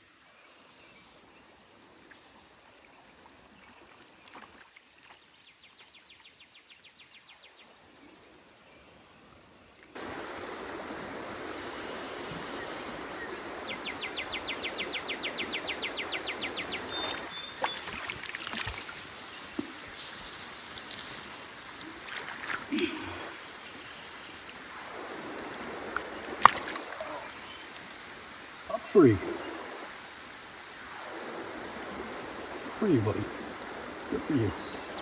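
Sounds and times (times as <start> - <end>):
stream running over gravel: 1.6 - 6.4, 9.9 - 35.0
fish splashing at surface: 17.6 - 19.0.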